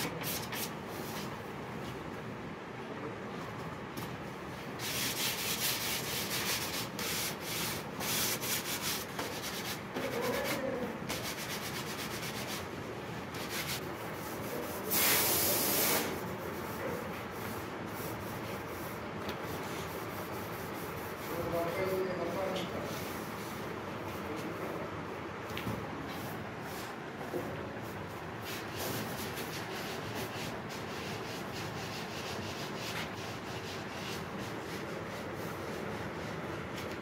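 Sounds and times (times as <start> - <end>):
loud hiss: 14.9 - 16.2.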